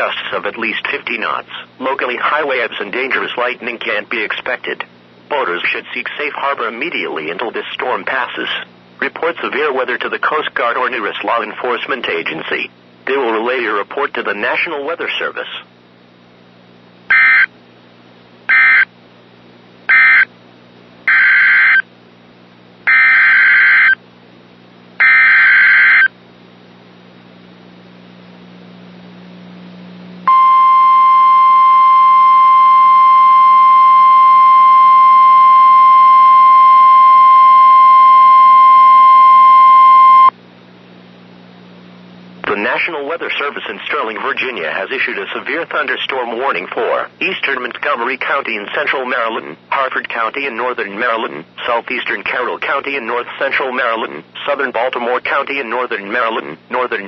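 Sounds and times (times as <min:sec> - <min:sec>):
steady single-pitch alert tone: 0:17.1 - 0:17.5, 0:18.5 - 0:18.9, 0:19.9 - 0:20.3, 0:21.1 - 0:21.8, 0:22.9 - 0:24.0, 0:25.0 - 0:26.1, 0:30.3 - 0:40.3.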